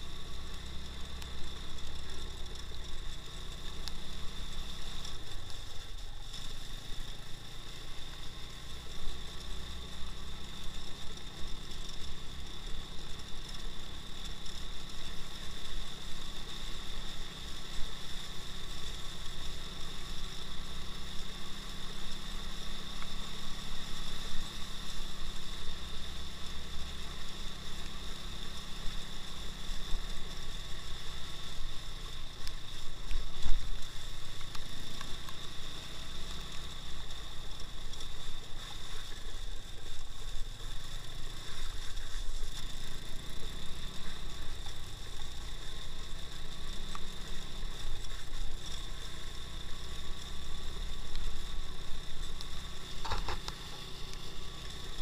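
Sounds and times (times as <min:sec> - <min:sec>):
motorcycle engine running: 0:00.0 - 0:55.0
steady high whine: 0:21.9 - 0:55.0.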